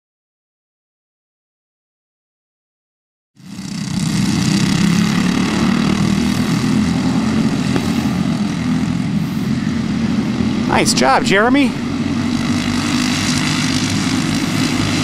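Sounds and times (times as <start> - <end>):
racing kart engines droning: 3.4 - 15.0.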